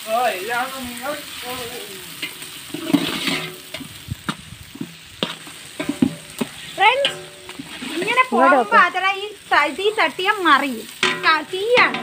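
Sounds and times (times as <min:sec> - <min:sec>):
onions sizzling in a pot: 0:00.0 - 0:12.0
ladle knocking against pot: 0:05.2 - 0:07.7
person speaking: 0:07.9 - 0:12.0.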